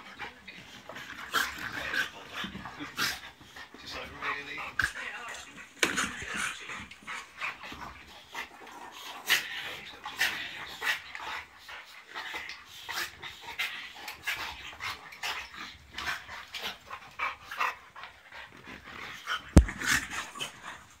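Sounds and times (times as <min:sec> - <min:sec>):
dogs panting and huffing: 0:00.0 - 0:21.0
sharp thump: 0:19.6 - 0:20.0.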